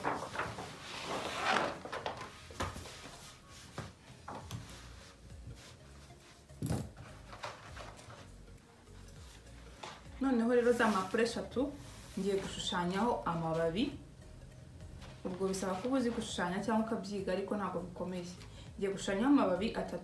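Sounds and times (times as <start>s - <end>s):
paper sheets rustling and crackling: 0.0s - 5.8s, 6.9s - 8.4s, 15.2s - 16.4s.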